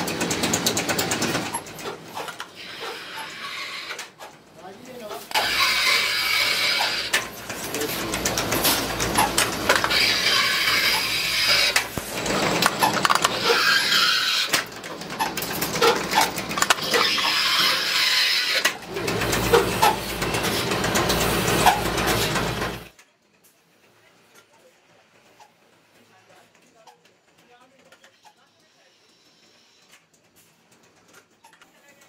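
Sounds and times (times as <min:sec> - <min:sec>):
metalworking machine running: 0:00.0 - 0:22.9
sharp metallic clicks and rattles: 0:07.1 - 0:13.9, 0:14.5 - 0:17.4.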